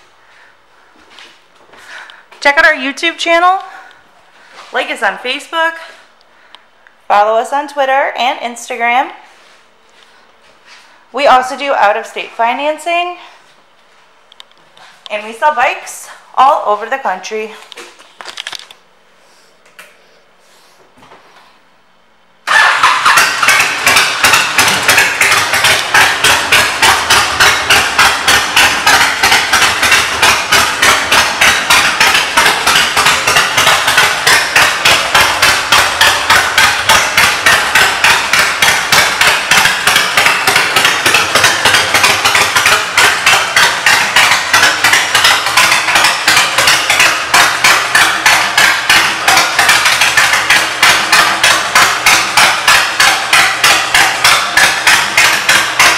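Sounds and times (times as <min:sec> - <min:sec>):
motorcycle engine idling loudly: 0:22.5 - 0:55.9.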